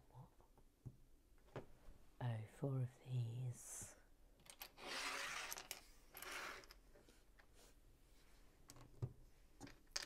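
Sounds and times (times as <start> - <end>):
plastic toy bricks clattering: 4.4 - 6.8, 9.6 - 10.0.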